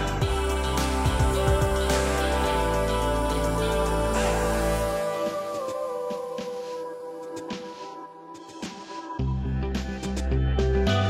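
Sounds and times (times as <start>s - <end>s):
deep bass line: 0.0s - 5.0s, 9.2s - 11.0s
background music of held notes: 0.0s - 9.0s.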